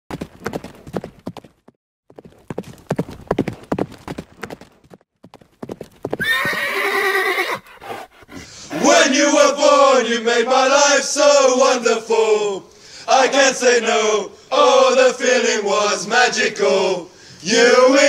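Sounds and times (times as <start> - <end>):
horse hooves galloping: 0.1 - 8.2
horse whinnying: 6.2 - 8.1.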